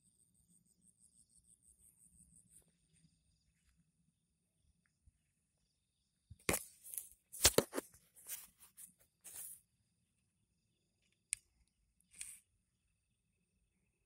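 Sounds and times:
dry grass and leaves rustling: 6.5 - 9.6.

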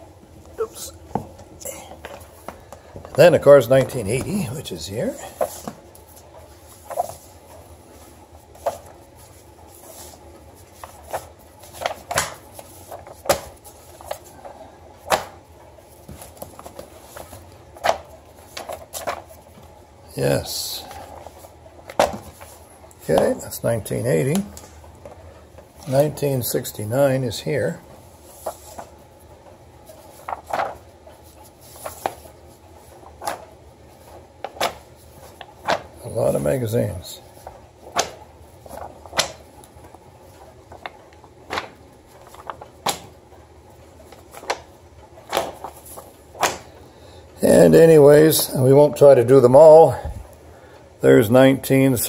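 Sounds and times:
paper rustling and sliding: 2.0 - 19.8, 20.8 - 23.4, 27.9 - 46.8
magazines slapping on table: 5.3 - 7.6, 8.6 - 19.7, 20.9 - 23.4, 29.8 - 36.1, 37.3 - 43.2, 44.0 - 46.8.

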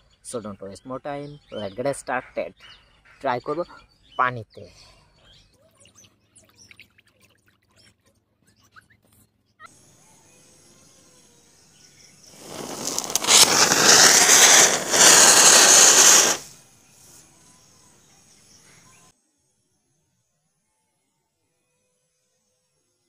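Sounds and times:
firework spark hiss: 12.2 - 16.6.

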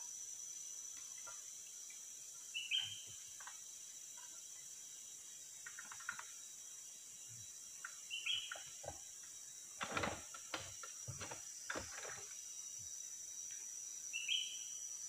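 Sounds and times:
insects droning: 0.0 - 15.0
bird chirp: 2.5 - 3.3, 7.8 - 8.9, 14.1 - 14.8.

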